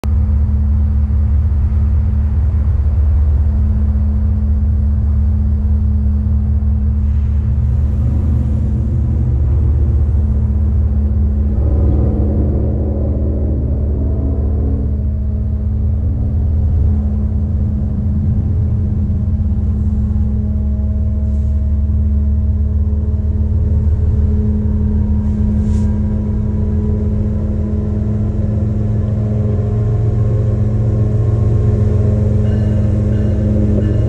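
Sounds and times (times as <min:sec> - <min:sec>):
diesel locomotive engines droning: 0:00.0 - 0:34.0.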